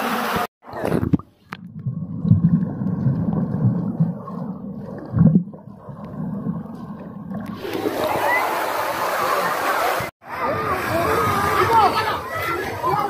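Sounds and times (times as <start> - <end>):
underwater bubbling and churning: 0.6 - 9.1.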